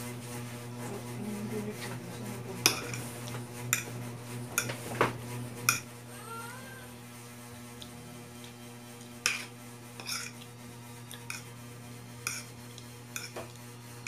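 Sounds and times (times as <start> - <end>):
steady low hum: 0.0 - 14.0
fork clinking against plate: 2.6 - 3.0, 9.2 - 10.4, 12.2 - 12.5, 13.1 - 13.6.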